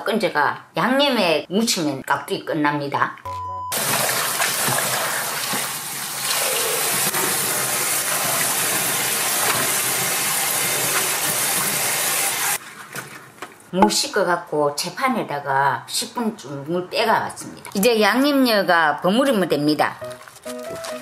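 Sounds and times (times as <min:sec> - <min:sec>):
short steady tone: 0:03.3 - 0:03.8
tap water splashing into basin: 0:03.8 - 0:12.4.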